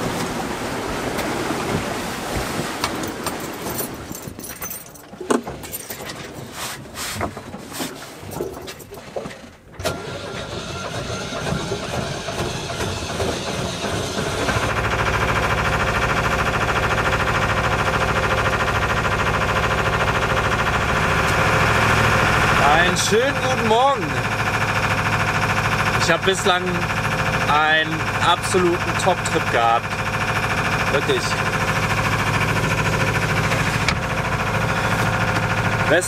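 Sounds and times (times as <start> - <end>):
knocks aboard boat: 0.0 - 9.6, 10.9 - 36.0
boat engine running: 0.0 - 36.0
water noise: 0.0 - 36.0
wind: 0.0 - 36.0.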